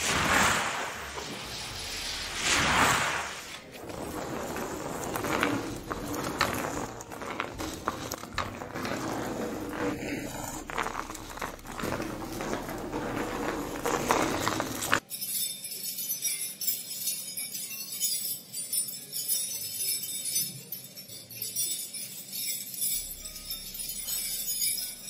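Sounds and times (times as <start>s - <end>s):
wrapped object crunching into sand: 0.0s - 7.6s
rolling pin on wooden floor: 0.0s - 15.0s.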